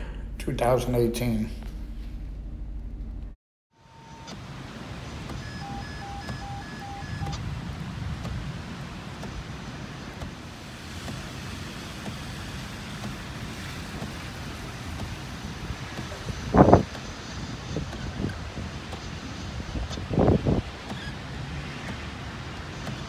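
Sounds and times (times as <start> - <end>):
outdoor hiss: 3.7 - 23.0
electronic beeps: 5.4 - 7.4
gusty wind on microphone: 7.1 - 23.0.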